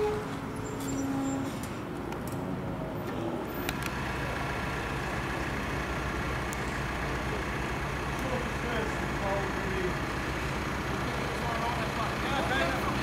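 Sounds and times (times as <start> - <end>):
vehicle engine idling: 3.0 - 13.0.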